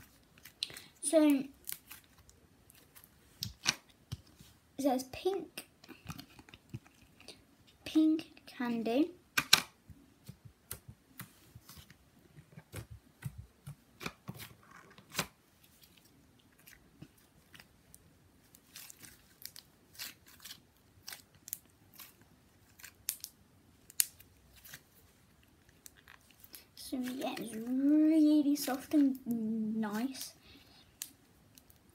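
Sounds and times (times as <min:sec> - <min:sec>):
slime clicking and crackling: 0:18.5 - 0:24.8.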